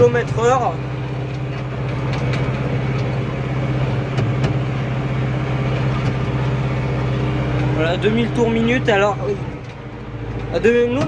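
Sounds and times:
tractor diesel engine running: 0.0s - 11.0s
light knocks and rattles: 1.3s - 3.2s.

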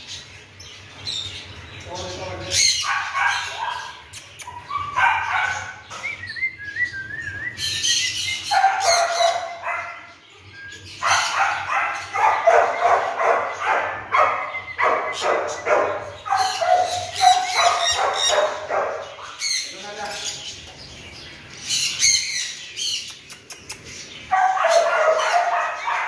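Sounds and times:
puppies yapping and barking: 2.5s - 6.3s, 7.7s - 19.7s, 23.4s - 26.0s.

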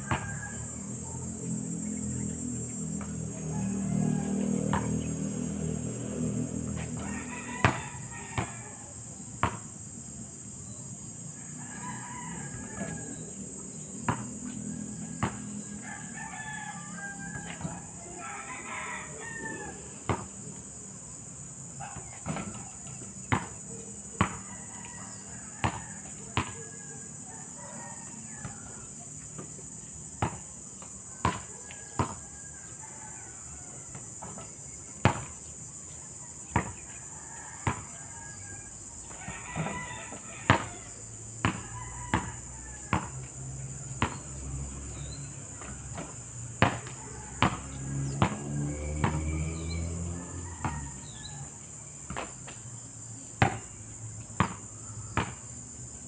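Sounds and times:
basketball bouncing on asphalt: 0.0s - 0.5s, 2.9s - 3.3s, 4.7s - 5.1s, 6.7s - 8.7s, 9.4s - 9.8s, 14.0s - 15.8s, 16.4s - 18.0s, 20.0s - 20.5s, 21.8s - 24.6s, 25.5s - 26.7s, 28.4s - 32.9s, 33.9s - 35.7s, 36.5s - 38.4s, 39.1s - 44.4s, 45.0s - 49.3s, 50.6s - 51.2s, 52.0s - 52.7s, 53.4s - 55.9s
roosters crowing: 0.0s - 56.0s.

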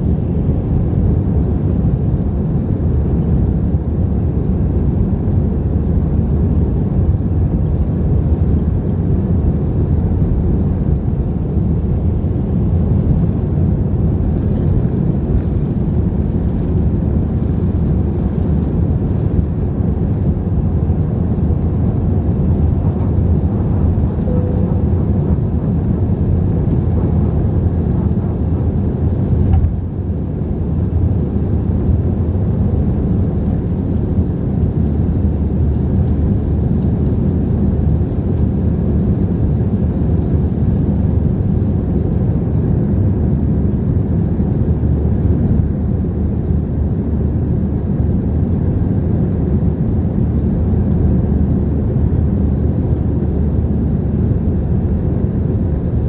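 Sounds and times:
jet engine roar inside cabin: 0.0s - 56.0s.

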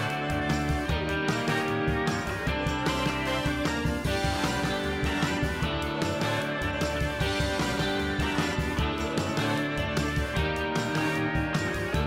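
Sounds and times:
upbeat guitar music with beat: 0.0s - 12.0s.

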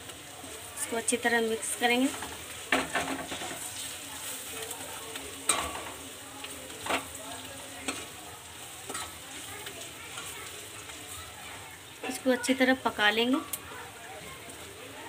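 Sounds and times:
food sizzling in oil: 0.0s - 15.0s
steel spoon scraping a pan: 1.8s - 4.7s, 5.4s - 6.0s, 7.8s - 11.2s.

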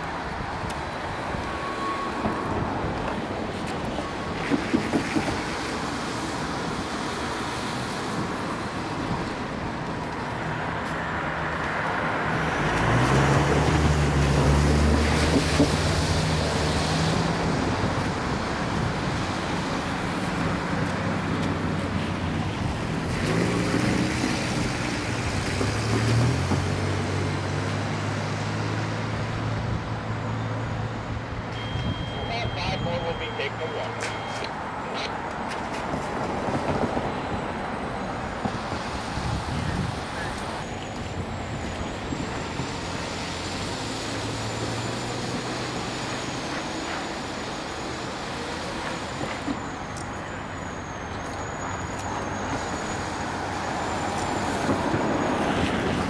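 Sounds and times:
diesel locomotive engine: 0.0s - 56.0s.

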